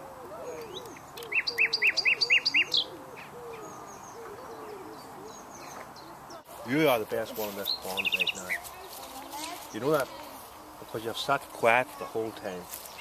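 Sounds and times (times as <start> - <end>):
bird singing high notes: 0.4 - 3.0.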